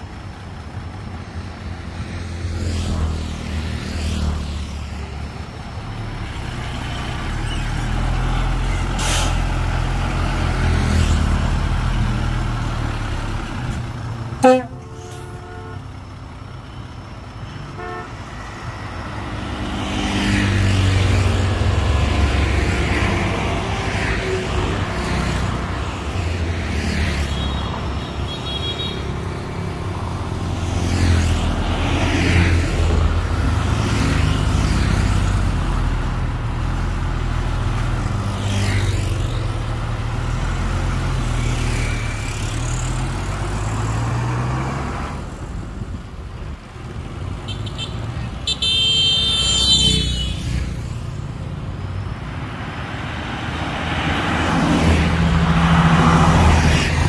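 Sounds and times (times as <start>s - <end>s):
diesel engine under load: 0.0s - 2.5s, 5.1s - 26.7s, 27.3s - 38.4s, 39.0s - 48.4s.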